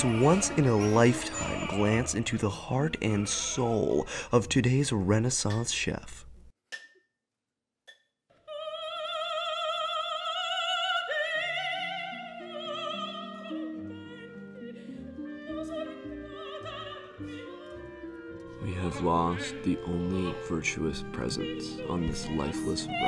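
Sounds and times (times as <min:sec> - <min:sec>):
orchestral accompaniment: 0:00.0 - 0:04.2, 0:12.8 - 0:23.0
operatic singing: 0:00.0 - 0:04.4, 0:08.5 - 0:23.0.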